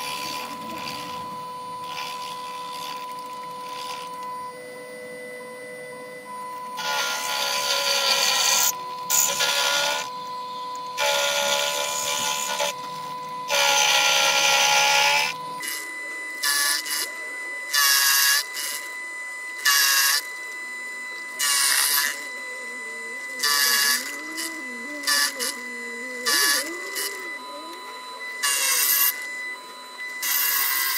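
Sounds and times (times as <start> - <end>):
milling motor whining: 0.0 - 30.9
end mill cutting metal: 6.7 - 30.9.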